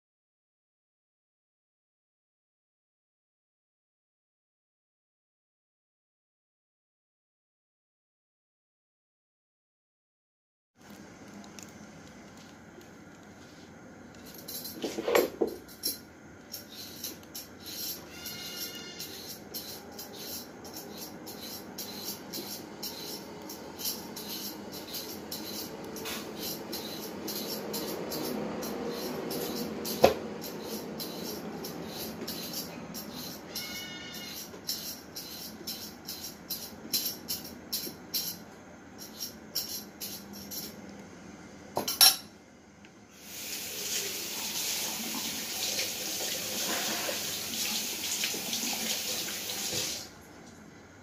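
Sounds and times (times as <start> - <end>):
high squeaks: 16.6 - 36.4.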